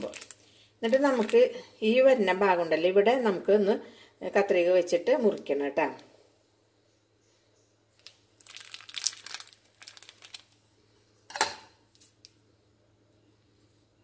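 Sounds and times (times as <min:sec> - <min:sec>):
plastic bag crinkling: 0:00.0 - 0:01.6, 0:08.0 - 0:10.7.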